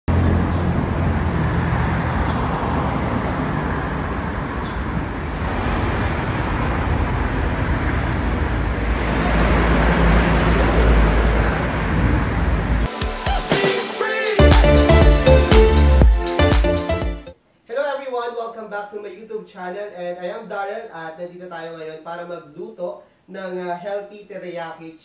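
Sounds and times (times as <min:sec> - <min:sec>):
heavy vehicle passing: 0:00.1 - 0:12.9
traffic rumble: 0:00.1 - 0:12.9.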